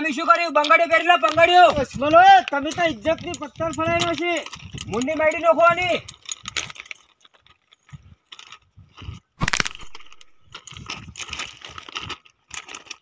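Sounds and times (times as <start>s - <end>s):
footsteps crunching on stones: 6.9s - 13.0s.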